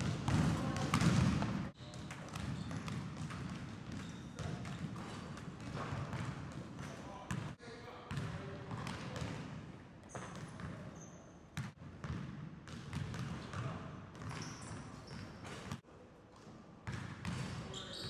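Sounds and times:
basketball bouncing on hardwood floor: 0.0 - 7.5.

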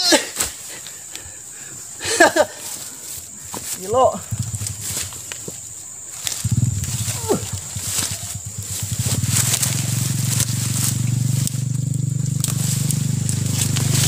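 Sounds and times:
man grunting with strain: 0.0 - 0.4, 7.1 - 7.6
leaves and undergrowth rustling: 0.0 - 14.0.

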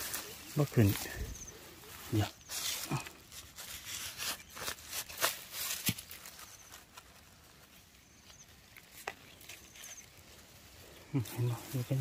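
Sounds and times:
grass rustling: 0.0 - 12.0
knife scraping in stony soil: 2.1 - 10.3.

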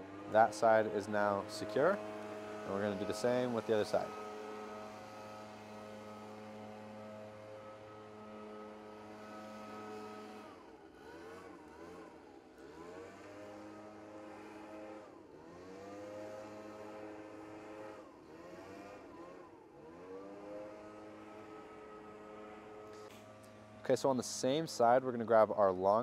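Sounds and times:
engine running: 0.0 - 26.0.

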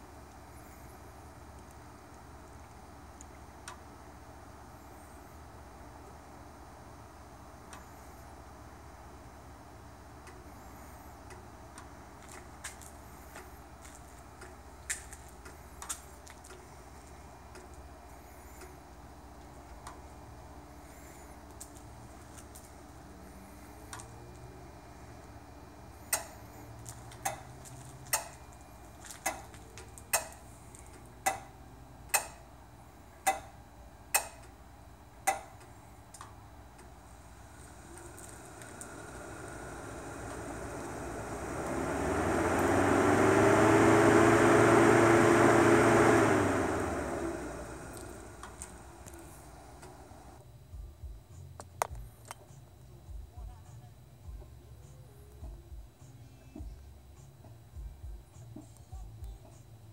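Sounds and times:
steady low hum: 0.0 - 59.9
sharp mechanical click: 32.1 - 32.4, 34.2 - 34.5.

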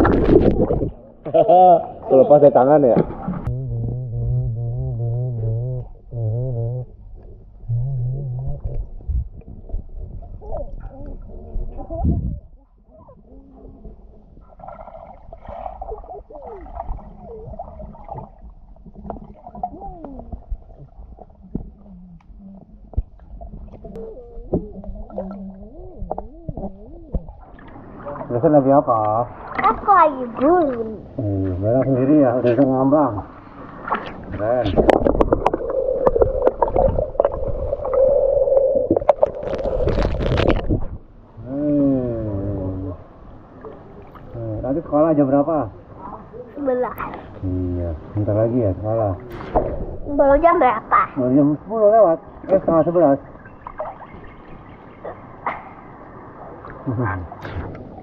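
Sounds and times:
water splashing: 0.0 - 2.1, 13.2 - 30.9, 33.2 - 41.0, 52.2 - 58.0
muffled underwater rumble: 3.0 - 28.9, 33.9 - 51.0
muffled wavering tones: 3.3 - 28.5, 33.9 - 45.0, 52.3 - 58.0
underwater clicks and knocks: 18.0 - 27.8, 34.7 - 38.0
underwater clicks and pops: 33.9 - 38.0.

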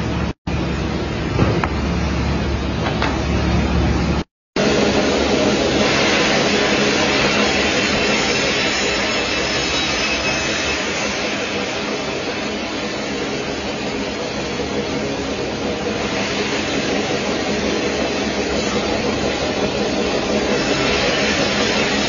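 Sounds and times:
band saw cutting log: 4.6 - 12.3.

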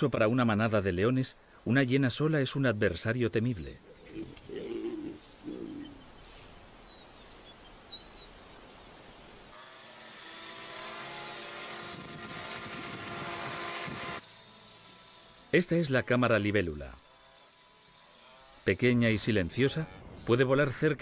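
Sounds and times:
bird chirps: 3.8 - 9.2
toy helicopter buzzing whine: 9.5 - 19.2.

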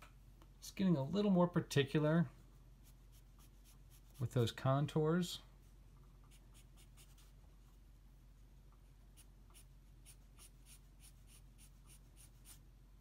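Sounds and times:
pencil strokes on paper: 2.8 - 4.5, 5.6 - 7.4, 9.1 - 12.6.

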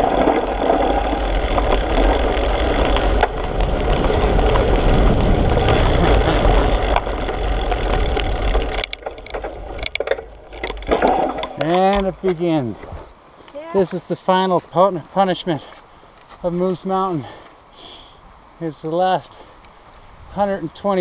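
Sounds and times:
wind buffeting microphone: 0.0 - 13.2.

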